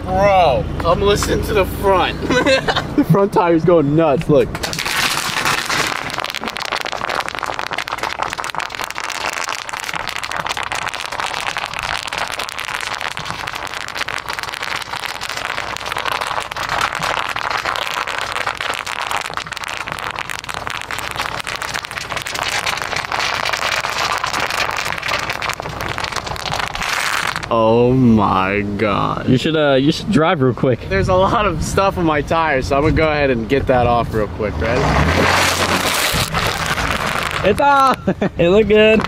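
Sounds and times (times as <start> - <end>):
tyres popping bubble wrap: 4.6 - 27.6, 35.0 - 38.1, 38.7 - 39.0.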